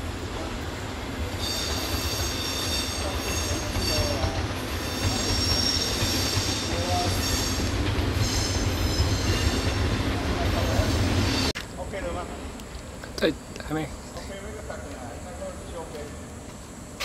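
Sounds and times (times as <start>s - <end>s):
train wheels squealing on rails: 1.2s - 11.6s.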